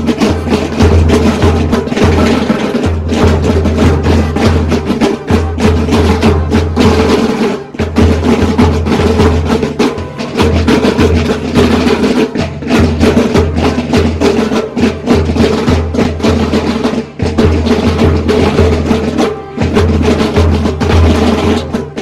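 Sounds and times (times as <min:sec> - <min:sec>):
snare drums marching beat: 0:00.0 - 0:22.0.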